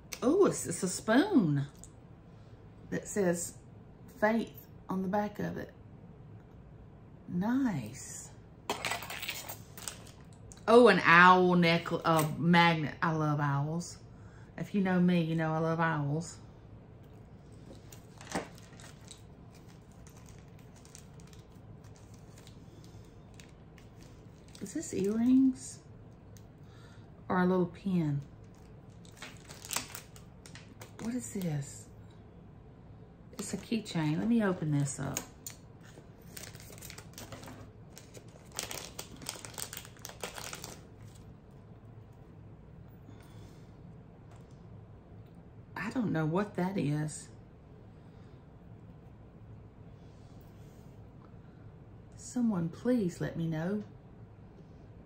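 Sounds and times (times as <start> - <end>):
trinkets and packaging rustling: 8.7 - 10.4, 17.4 - 25.6, 28.4 - 31.4, 33.4 - 41.3
wrapping crinkling: 8.7 - 10.4, 17.4 - 26.5, 28.2 - 31.3, 33.4 - 41.4.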